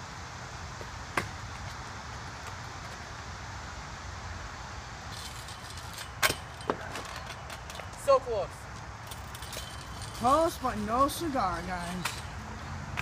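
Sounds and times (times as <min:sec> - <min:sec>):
outdoor background hiss: 0:00.0 - 0:13.0
scooter clacking on asphalt: 0:08.8 - 0:13.0.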